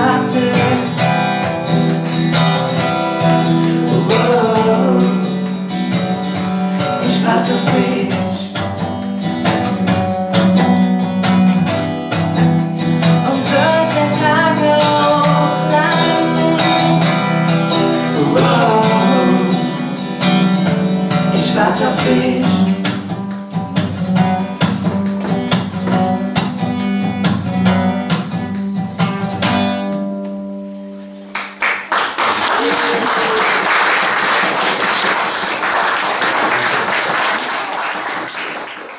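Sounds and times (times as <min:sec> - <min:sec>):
acoustic guitar strumming: 0:00.0 - 0:31.3
audience applauding: 0:01.8 - 0:04.3, 0:31.3 - 0:38.9.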